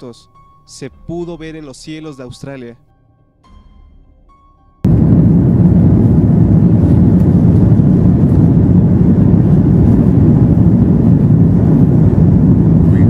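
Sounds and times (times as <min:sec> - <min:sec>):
airliner cabin rumble: 0:04.8 - 0:13.0.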